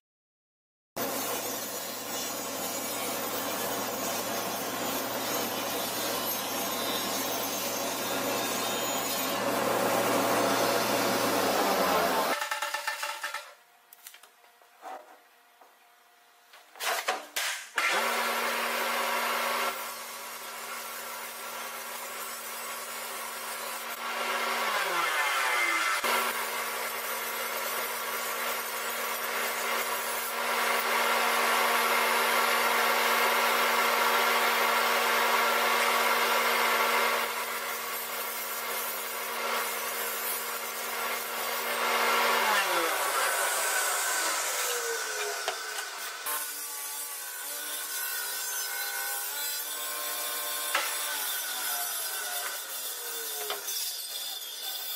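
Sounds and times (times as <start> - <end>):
table saw motor hum: 1.0 - 12.4, 17.9 - 46.7
saw blade cutting wood: 1.0 - 13.6, 16.8 - 54.9.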